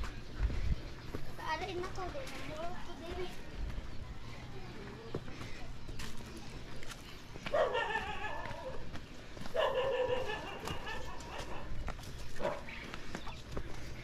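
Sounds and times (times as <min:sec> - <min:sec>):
animal calls: 0:07.5 - 0:08.9, 0:09.5 - 0:13.4.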